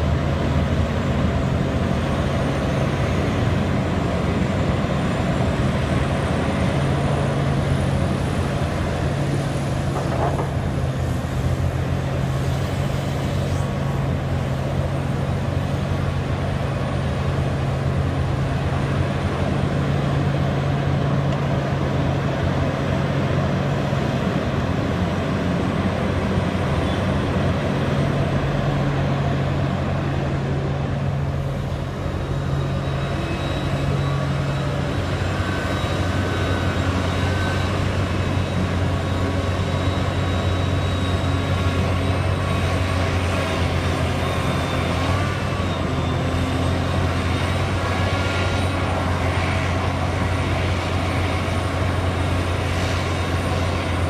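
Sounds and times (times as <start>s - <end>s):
excavator diesel engine running: 0.0s - 54.0s
faint high whine: 31.4s - 43.0s.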